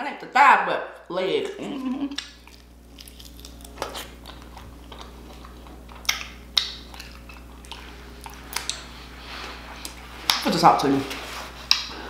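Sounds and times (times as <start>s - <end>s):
person chewing: 2.0s - 10.5s, 11.5s - 12.0s
lip smacks and clicks: 2.1s - 8.9s, 11.6s - 12.0s.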